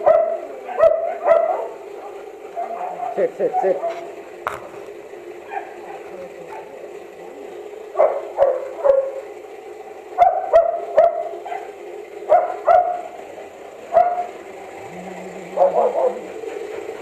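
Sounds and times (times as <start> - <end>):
dog barking: 0.0 - 4.1, 5.4 - 6.8, 7.9 - 9.2, 10.2 - 13.2, 13.9 - 14.4, 15.4 - 16.4.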